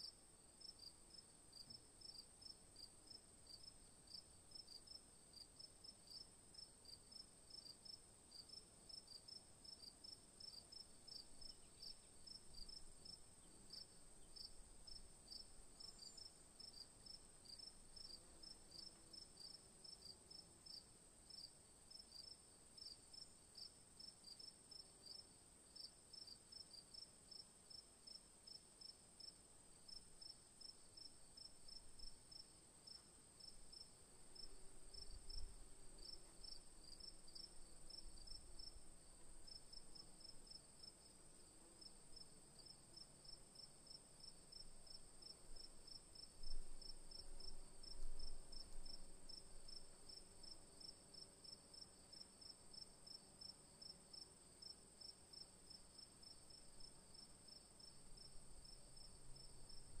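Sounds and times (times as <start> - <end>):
insect chorus chirping: 8.9 - 20.0, 33.4 - 40.9, 54.1 - 60.0.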